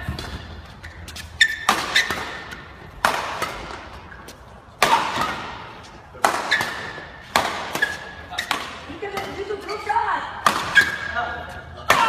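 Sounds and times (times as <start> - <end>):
rackets hitting a shuttlecock: 0.0 - 11.2
shoe squeak on court: 0.7 - 2.6, 6.4 - 7.1, 7.7 - 8.6, 10.7 - 11.2.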